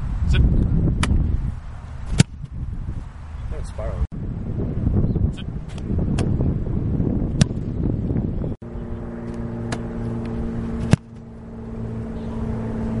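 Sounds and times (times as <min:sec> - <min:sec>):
wind noise on microphone: 0:00.0 - 0:09.0
low steady hum: 0:06.4 - 0:13.0.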